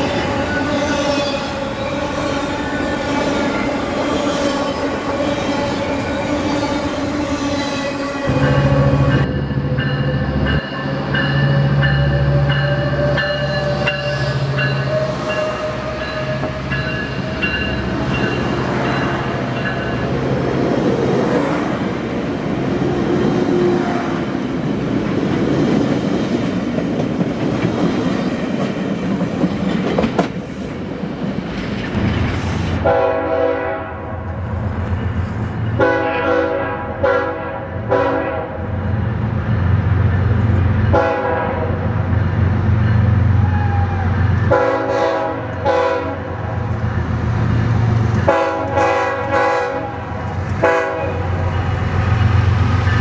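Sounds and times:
train passing with rail clatter: 0:00.0 - 0:53.0
locomotive horn blasts: 0:32.8 - 0:34.2, 0:35.8 - 0:38.6, 0:40.9 - 0:41.8, 0:44.5 - 0:46.4, 0:48.2 - 0:51.4.

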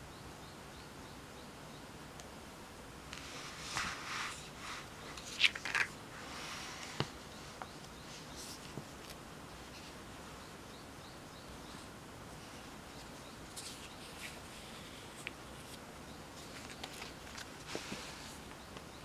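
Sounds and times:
paper rustling and sliding: 0:03.2 - 0:07.6, 0:16.4 - 0:18.4.

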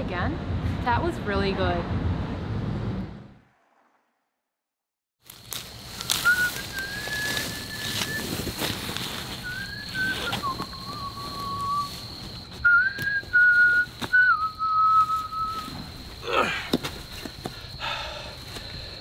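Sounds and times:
person whistling a slow tune: 0:06.0 - 0:08.4, 0:09.4 - 0:12.0, 0:12.6 - 0:15.7.

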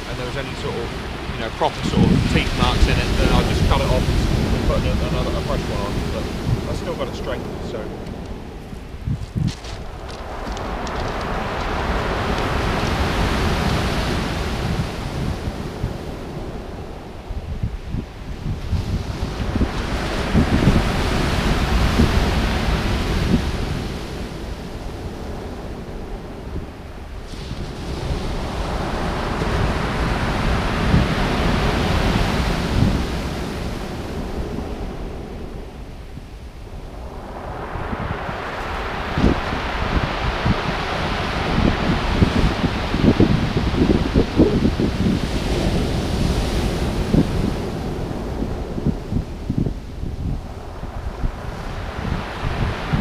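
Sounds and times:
surf breaking on pebble beach: 0:00.0 - 0:16.6, 0:27.2 - 0:34.9
surf washing up pebble beach: 0:00.0 - 0:17.2, 0:18.3 - 0:53.0
wind buffeting microphone: 0:00.0 - 0:53.0.

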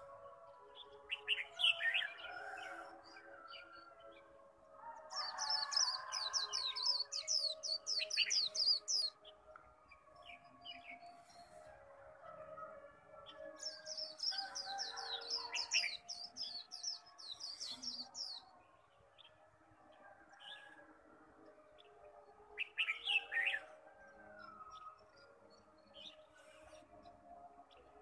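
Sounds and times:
bird twittering song: 0:05.1 - 0:09.4.

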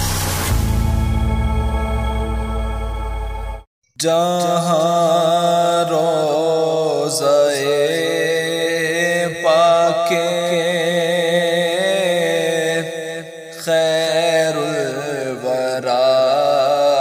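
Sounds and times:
low drone: 0:00.0 - 0:03.7
person singing wordless melody: 0:04.0 - 0:17.0.

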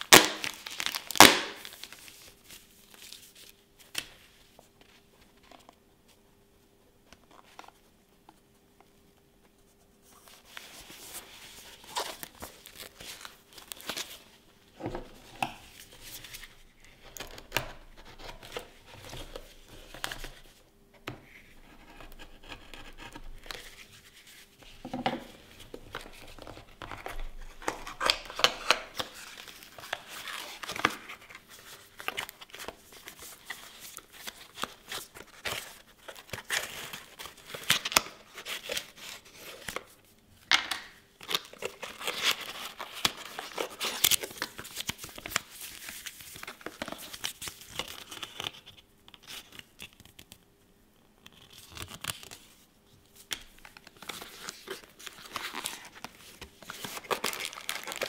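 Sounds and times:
cardboard crinkling and tearing: 0:00.0 - 0:03.5, 0:25.7 - 0:40.0, 0:41.2 - 0:49.6, 0:53.6 - 0:58.0.

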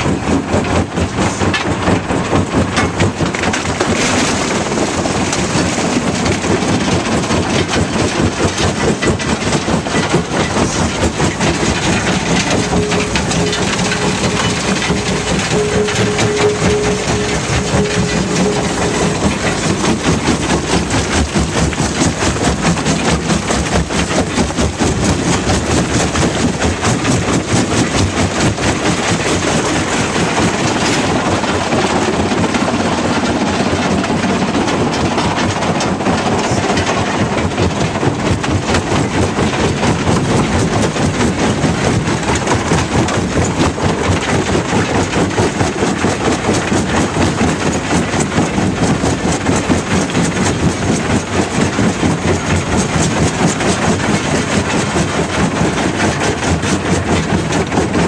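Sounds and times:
jaw crusher crushing rock: 0:00.0 - 0:31.8.

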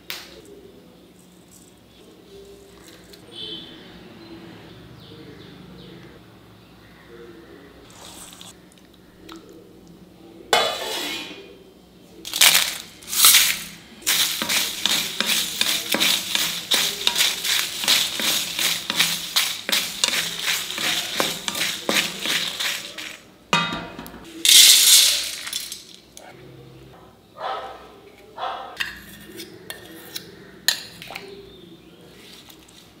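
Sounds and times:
scraping in a bowl: 0:10.6 - 0:11.5, 0:12.3 - 0:25.7
meat squelching in marinade: 0:13.6 - 0:23.2.

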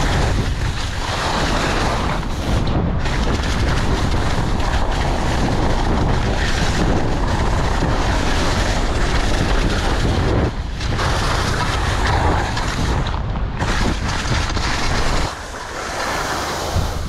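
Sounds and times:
skis scraping over snow: 0:00.0 - 0:17.0
wind rushing over microphone: 0:00.0 - 0:17.0.

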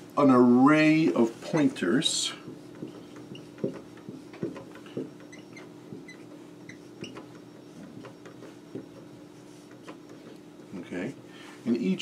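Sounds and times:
faint steady hum: 0:00.0 - 0:12.0
marker squeaking on whiteboard: 0:01.4 - 0:01.8, 0:02.4 - 0:10.4.

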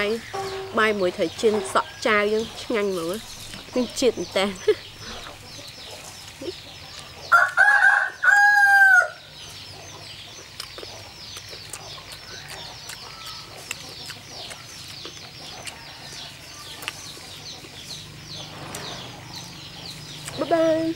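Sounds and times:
rooster crowing: 0:07.3 - 0:09.2.

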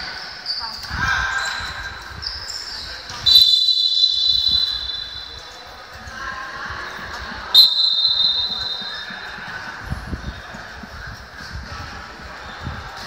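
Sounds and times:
referee's whistle: 0:03.2 - 0:05.6, 0:07.5 - 0:09.2.

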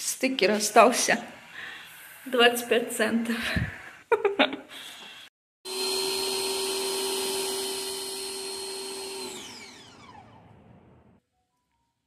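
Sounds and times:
pressure washer motor whining: 0:05.7 - 0:11.2.

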